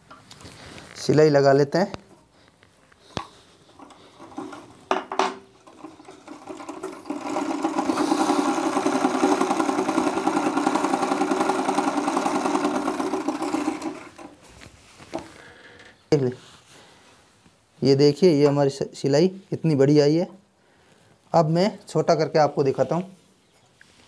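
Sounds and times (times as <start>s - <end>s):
sewing machine clicks: 3.7s - 14.4s
overlock machine stitching chatter: 3.8s - 4.7s, 5.6s - 14.4s.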